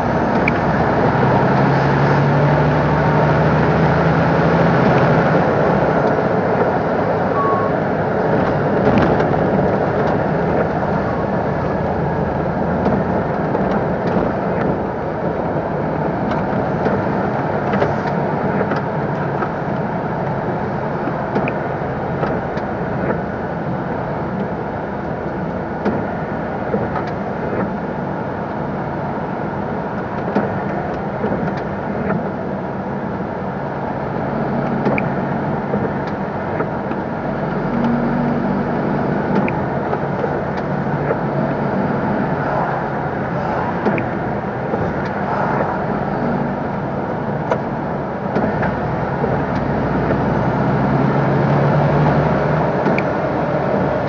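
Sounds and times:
diesel engine drone: 0:00.0 - 0:54.0
clicks and rattles in cab: 0:08.2 - 0:12.0, 0:16.1 - 0:23.3, 0:25.8 - 0:27.8, 0:29.9 - 0:33.3, 0:34.6 - 0:38.0, 0:39.2 - 0:50.3, 0:52.6 - 0:54.0.

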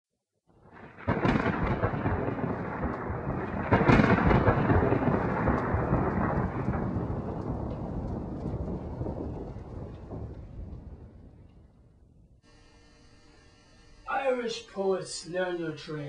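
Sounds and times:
rain: 0:00.6 - 0:11.7
thunder crack and rumble: 0:00.6 - 0:12.4.

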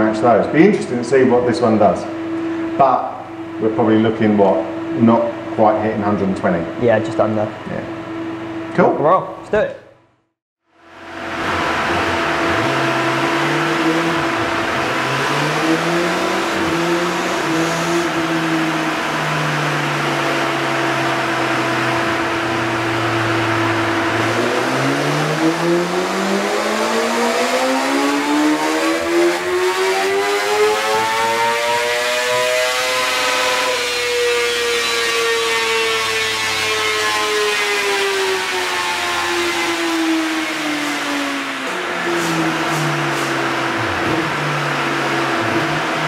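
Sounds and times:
motorcycle engine revving: 0:10.9 - 0:46.0.

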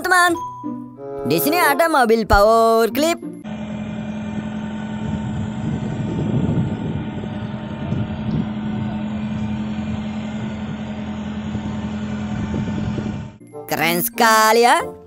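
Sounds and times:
forklift engine humming: 0:03.4 - 0:13.5.

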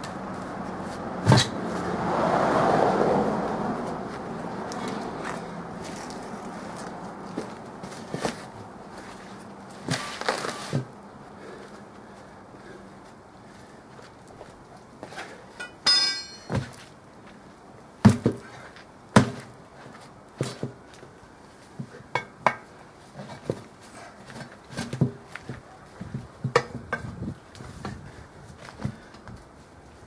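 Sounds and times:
boots pressing on tyre: 0:03.8 - 0:15.3
metal clank: 0:15.6 - 0:16.7.

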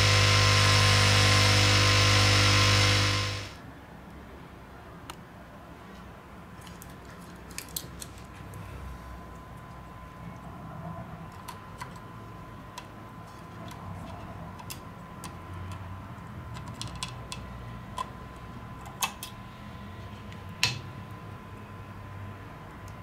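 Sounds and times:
small metal parts clicking: 0:06.6 - 0:08.2.

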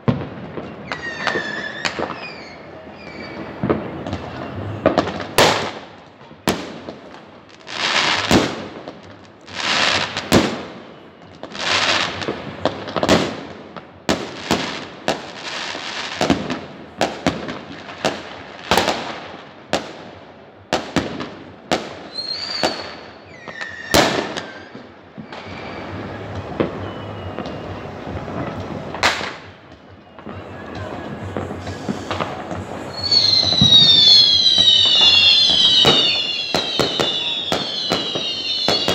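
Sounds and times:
fireworks bangs with crackling: 0:00.0 - 0:38.9
high falling whistles: 0:00.7 - 0:03.6, 0:22.1 - 0:28.6, 0:29.3 - 0:38.9.

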